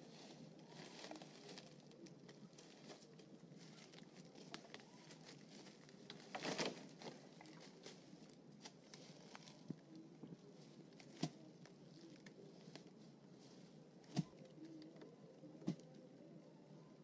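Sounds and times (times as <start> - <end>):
dry leaves rustling: 0.0 - 14.8
sticks cracking: 6.0 - 8.0.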